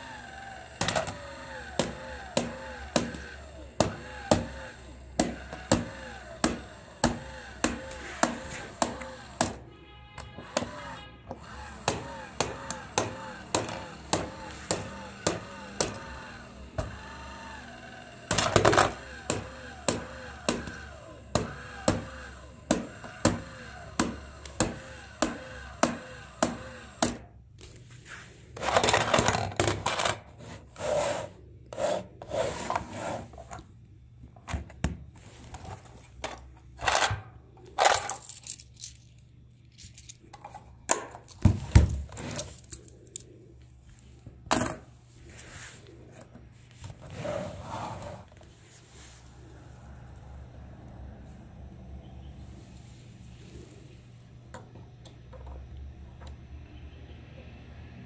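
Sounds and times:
toy motorised kicker clicking: 0.0 - 9.6, 10.4 - 27.3
coins and plastic rattling: 0.8 - 1.4, 28.6 - 30.3, 35.7 - 43.4.

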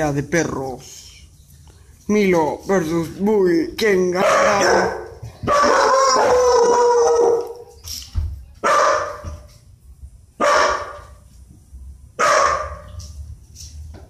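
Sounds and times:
dog barking: 4.2 - 7.6, 8.6 - 9.3, 10.4 - 11.2, 12.2 - 13.0.

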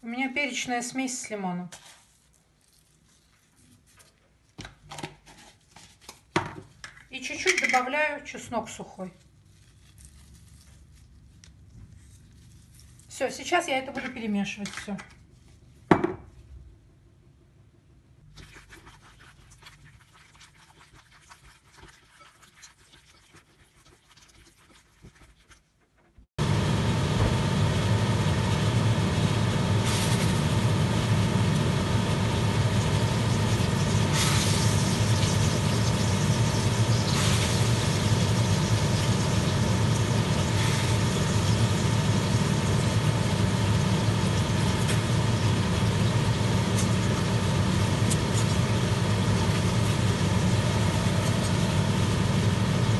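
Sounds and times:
low hum: 26.4 - 52.9
cutlets sizzling in a pan: 31.4 - 51.6.

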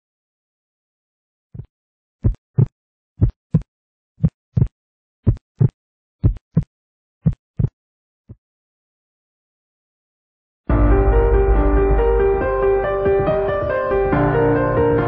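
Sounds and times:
heartbeat thumps: 1.6 - 4.7, 5.3 - 7.7.

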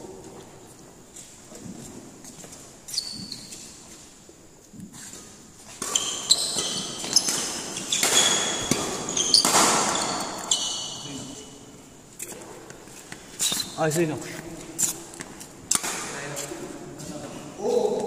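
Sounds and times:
shoes squeaking on floor: 0.2 - 15.6
racket hitting shuttlecock: 5.7 - 10.5, 15.2 - 16.1.

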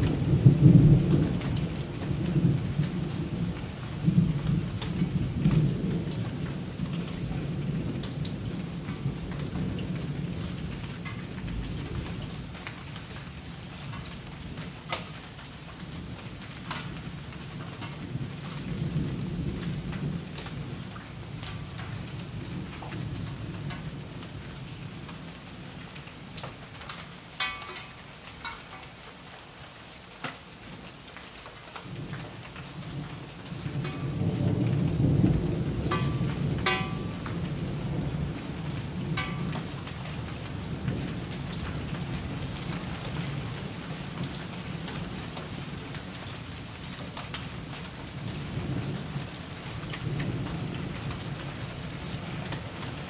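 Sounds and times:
thunder rumbling: 0.0 - 12.6, 31.9 - 42.6
steady rain: 0.0 - 53.0.

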